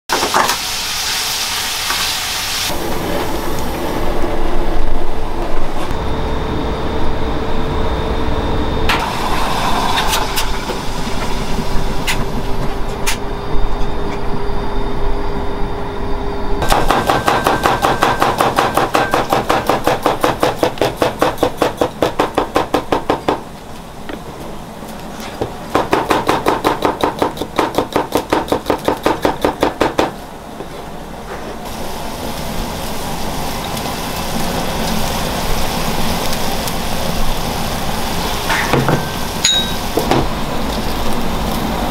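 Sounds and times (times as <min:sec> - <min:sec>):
food sizzling in frying pan: 0:00.2 - 0:03.7, 0:31.6 - 0:41.9.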